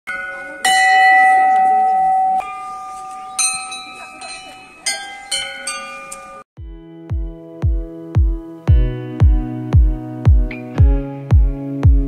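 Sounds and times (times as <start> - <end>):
temple bells clanging: 0.1 - 6.5.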